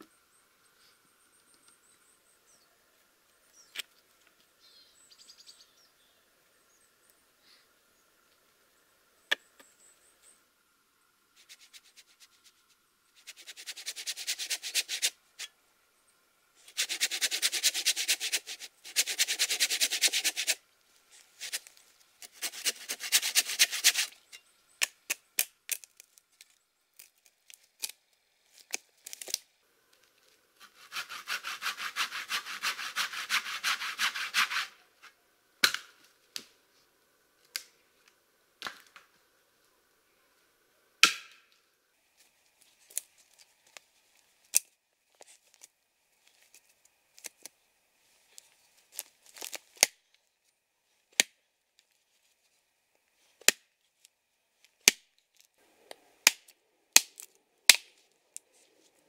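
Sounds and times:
hand saw cutting log: 0:13.2 - 0:15.5, 0:16.6 - 0:20.6, 0:21.4 - 0:24.2, 0:30.6 - 0:34.8.

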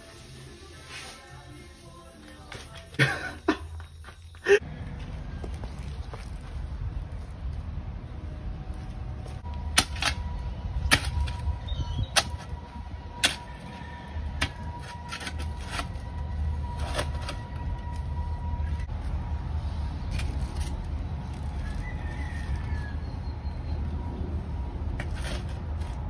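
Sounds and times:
wind rumble on microphone: 0:10.2 - 0:15.0.

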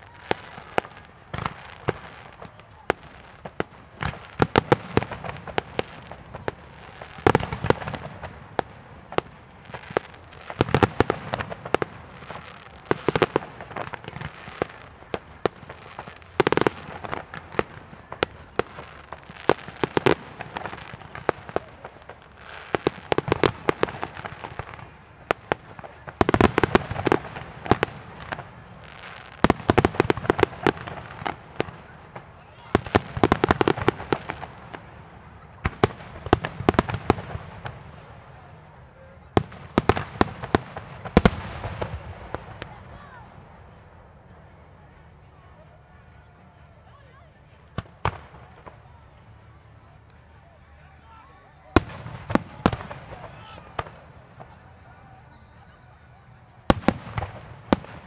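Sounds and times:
fireworks bursting and crackling: 0:00.0 - 0:46.6, 0:47.5 - 0:50.4, 0:51.6 - 0:58.0.

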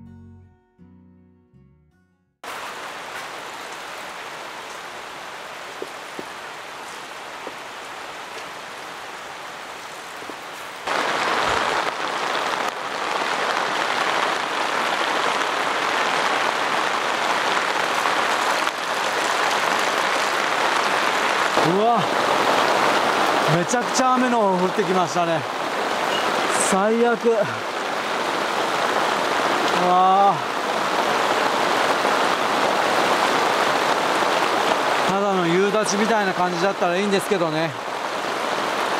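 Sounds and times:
heavy rain pouring: 0:02.4 - 0:38.9
raindrops ticking: 0:03.0 - 0:28.8.

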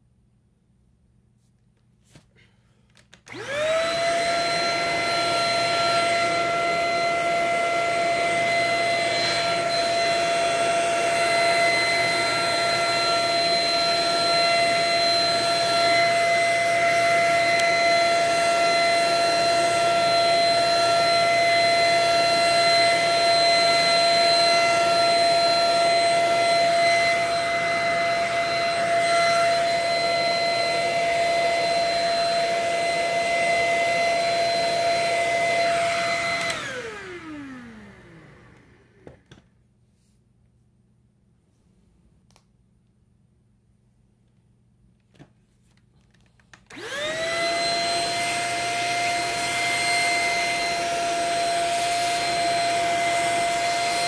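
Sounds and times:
high-speed blower whining: 0:03.3 - 0:39.2, 0:46.7 - 0:54.0.

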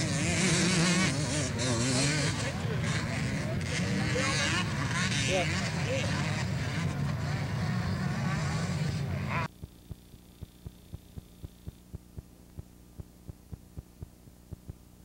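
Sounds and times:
voices: 0:00.0 - 0:09.6
motorcycle engines: 0:00.0 - 0:14.8
low electrical hum: 0:09.2 - 0:15.0
faint ticking: 0:09.5 - 0:15.0.

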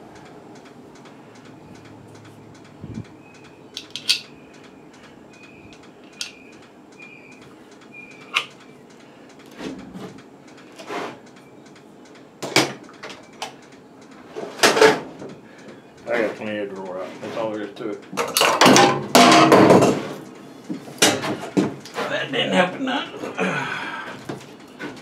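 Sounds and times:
metal fittings clicking: 0:03.8 - 0:04.3.

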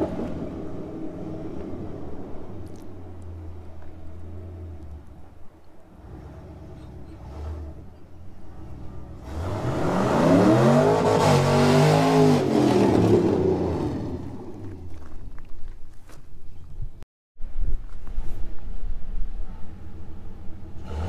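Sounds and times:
engine revving hard: 0:06.0 - 0:14.4, 0:20.8 - 0:21.0.

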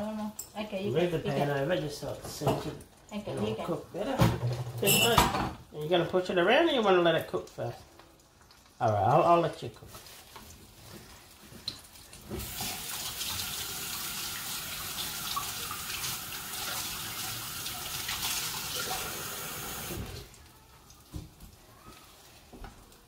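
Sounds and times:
tap running into sink: 0:11.7 - 0:16.8.

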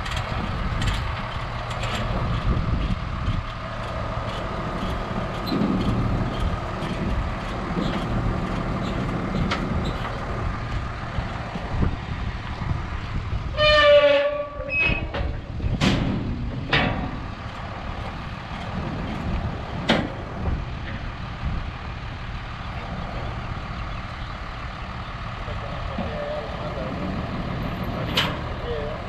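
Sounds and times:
diesel machinery running: 0:00.0 - 0:29.0
metal clanks: 0:14.2 - 0:17.2.

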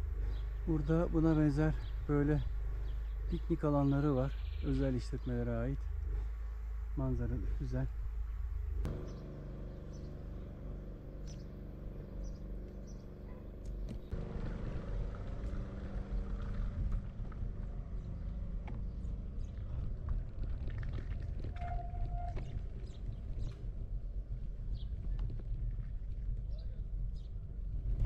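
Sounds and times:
vehicle engine running: 0:00.0 - 0:21.6
tyres rolling over paving stones: 0:18.8 - 0:23.4.

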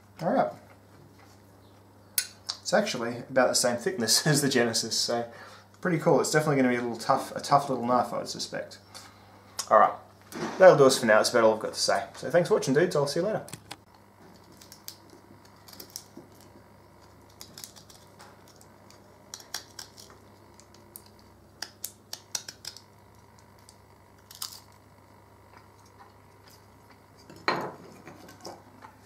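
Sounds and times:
knife shaving wood: 0:14.0 - 0:27.3.

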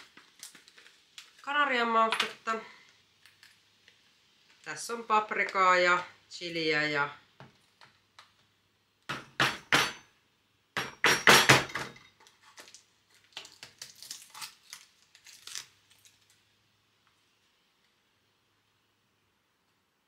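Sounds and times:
glass and kitchenware clinks: 0:10.8 - 0:12.2.

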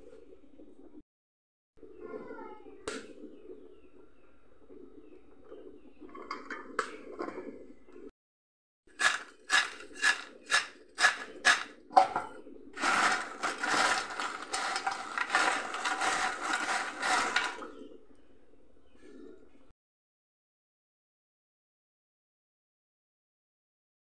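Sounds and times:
chips clattering while stirred: 0:08.9 - 0:17.7
chips rattling in steel bowl: 0:09.0 - 0:12.2, 0:12.8 - 0:17.7.

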